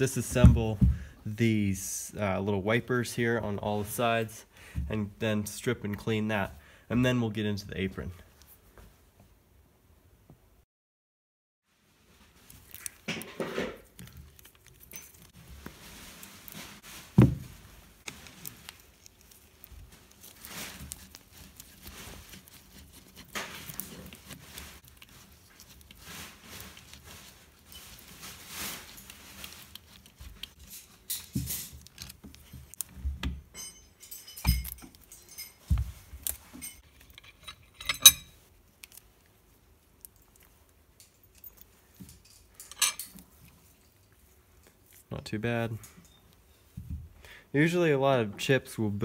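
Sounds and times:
metal scraping and rubbing: 0:18.0 - 0:32.9, 0:36.2 - 0:38.4
metal parts clinking: 0:33.5 - 0:35.6, 0:36.2 - 0:38.4, 0:41.0 - 0:43.2.

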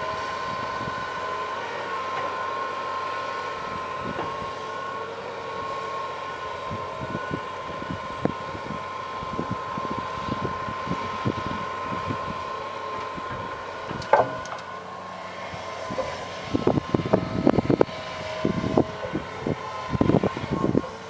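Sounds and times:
excavator engine drone: 0:00.0 - 0:21.0
excavator bucket clanking: 0:13.9 - 0:14.7.

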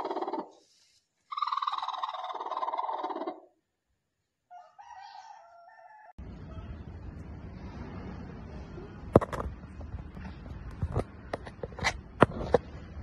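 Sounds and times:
hen squawking: 0:00.0 - 0:00.6, 0:01.3 - 0:03.5.

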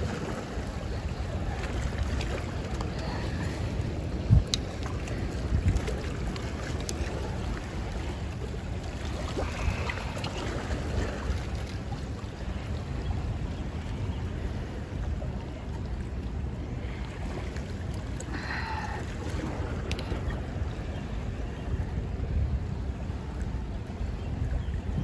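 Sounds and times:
rushing spillway water: 0:00.0 - 0:14.1
wind noise on microphone: 0:00.0 - 0:17.5, 0:18.3 - 0:25.0.

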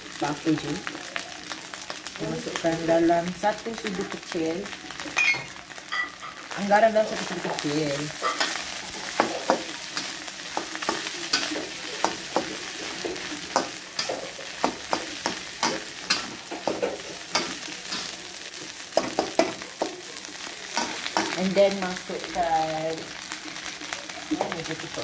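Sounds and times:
rice sizzling in a wok: 0:00.0 - 0:25.0
metal spatula scraping a pan: 0:05.1 - 0:18.2.

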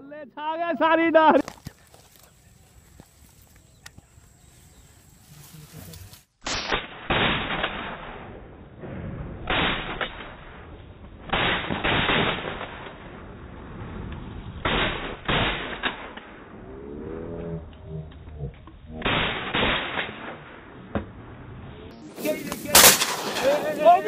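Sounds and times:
shotgun shots echoing: 0:06.4 - 0:13.3, 0:19.0 - 0:21.1, 0:22.2 - 0:24.0.

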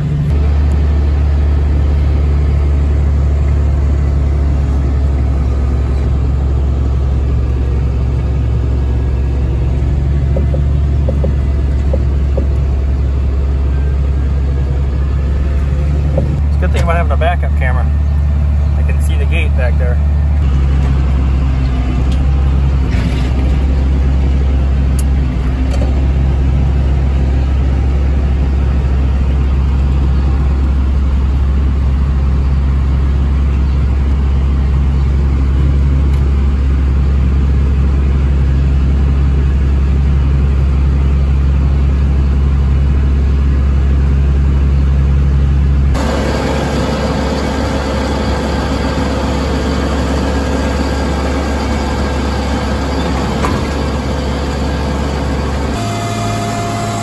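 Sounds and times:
tractor diesel engine running: 0:00.0 - 0:57.0
higher mechanical tones: 0:46.0 - 0:57.0.

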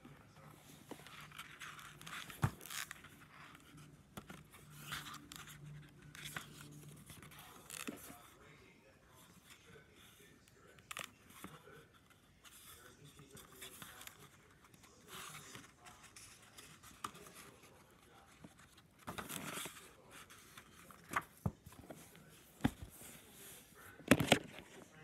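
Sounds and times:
book and bedsheet rustling: 0:14.6 - 0:25.0.

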